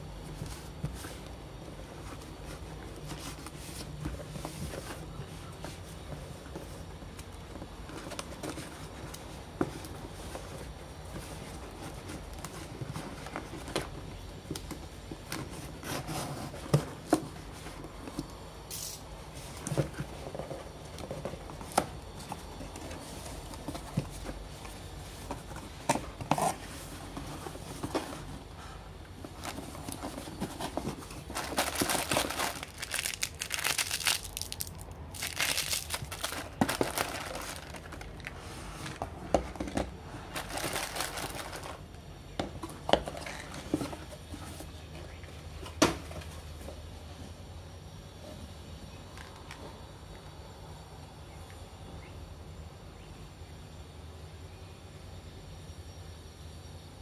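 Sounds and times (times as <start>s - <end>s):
plastic wrap crinkling: 29.3s - 38.4s, 40.3s - 41.8s
cardboard and tape tearing: 29.8s - 38.1s.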